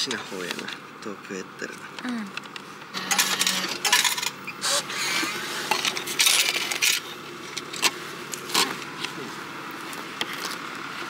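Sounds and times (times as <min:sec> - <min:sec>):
coins clattering in tray: 0:03.0 - 0:04.4.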